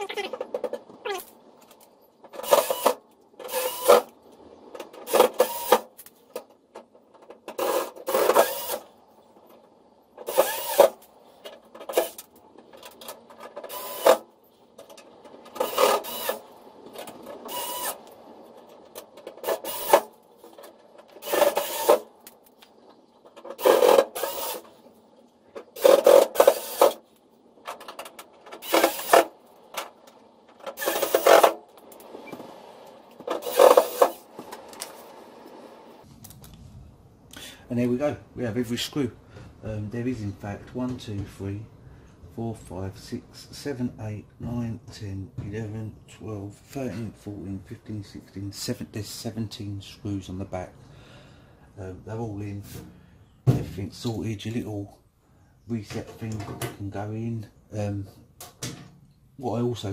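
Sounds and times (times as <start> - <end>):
electric screwdriver driving screws: 2.4 - 4.0, 7.6 - 8.8, 10.3 - 10.9, 15.6 - 16.4, 17.5 - 18.0, 21.2 - 22.0, 23.6 - 24.6, 25.8 - 27.0, 28.6 - 29.3.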